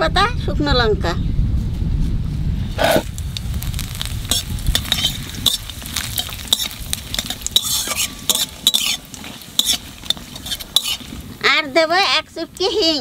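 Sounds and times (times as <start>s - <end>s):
spices sizzling in hot oil: 2.8s - 13.0s
metal spatula scraping pan: 4.3s - 11.2s.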